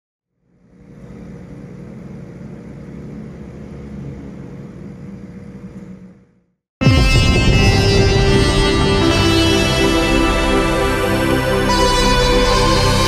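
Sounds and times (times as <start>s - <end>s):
faint hum: 0.3s - 6.6s.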